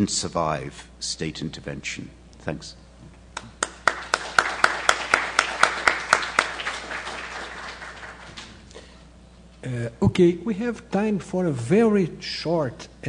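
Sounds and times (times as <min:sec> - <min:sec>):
audience applauding: 0:03.4 - 0:08.7
loud person clapping evenly: 0:03.4 - 0:08.7.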